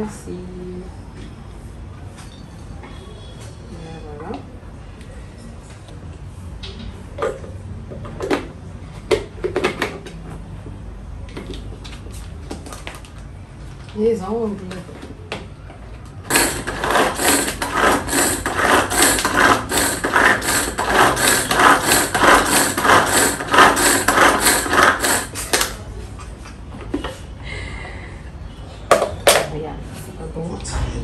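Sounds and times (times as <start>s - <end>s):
pull-cord food chopper whirring: 16.3s - 25.8s.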